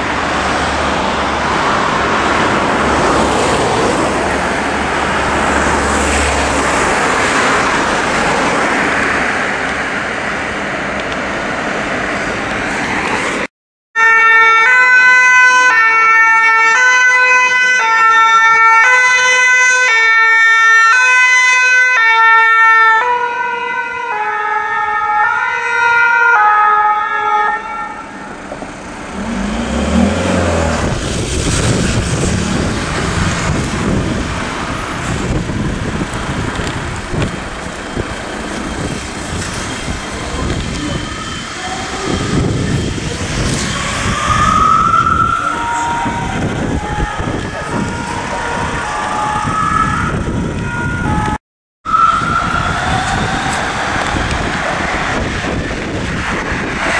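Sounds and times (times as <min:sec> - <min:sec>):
road traffic noise: 0:00.0 - 0:56.9
two-tone siren: 0:14.0 - 0:34.4, 0:39.6 - 0:55.6.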